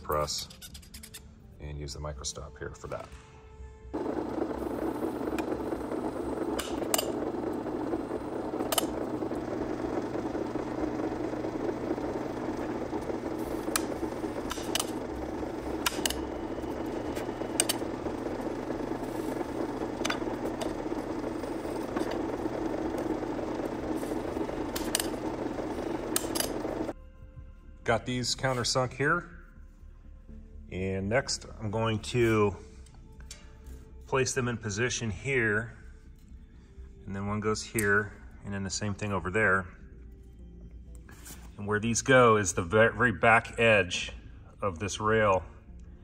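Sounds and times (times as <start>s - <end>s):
drill press cutting metal: 4.0s - 26.9s
sharp clicks and ticks: 4.0s - 26.9s.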